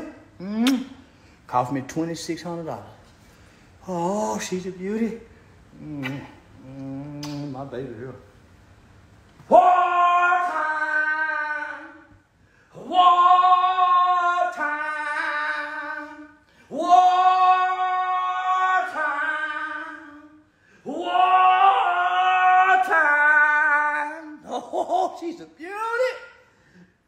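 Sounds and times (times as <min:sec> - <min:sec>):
wordless singing voice: 0:09.4 - 0:26.4.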